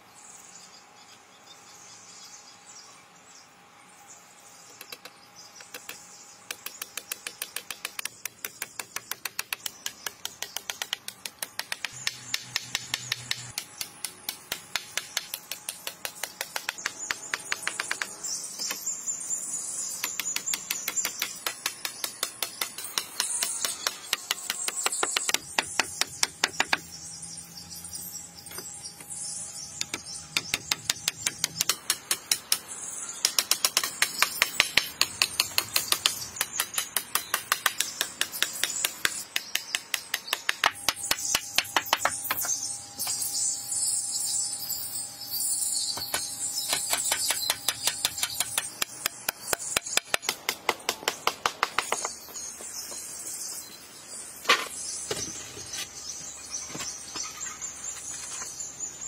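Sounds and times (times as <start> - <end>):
hatchet chopping wooden logs: 4.7 - 18.8, 19.9 - 26.9, 29.8 - 43.2, 46.0 - 52.2
high buzz of insects: 37.2 - 59.0.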